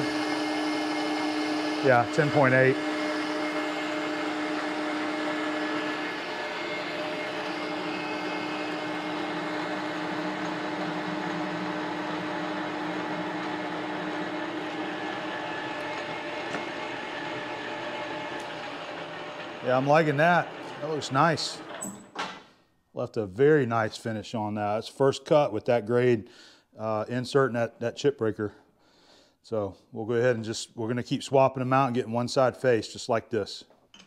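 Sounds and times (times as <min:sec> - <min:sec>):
metal lathe cutting steel: 0:00.0 - 0:21.9.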